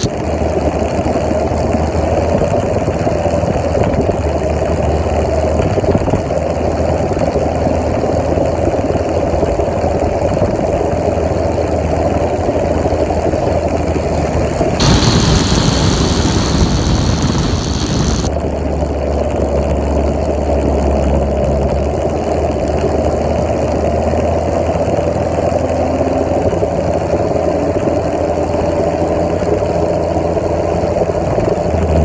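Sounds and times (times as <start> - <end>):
high-pitched whine: 0.0 - 0.6, 14.8 - 18.3
moped engine droning: 0.0 - 5.5, 6.3 - 20.6.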